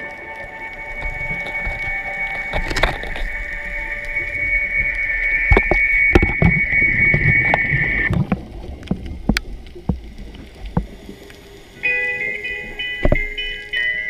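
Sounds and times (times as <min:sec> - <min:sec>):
steady high hiss: 0:00.0 - 0:08.8, 0:09.4 - 0:14.0
low underwater rumble: 0:00.0 - 0:11.8
sharp clicks and crackles: 0:00.0 - 0:14.0
plucked guitar music: 0:11.8 - 0:14.0.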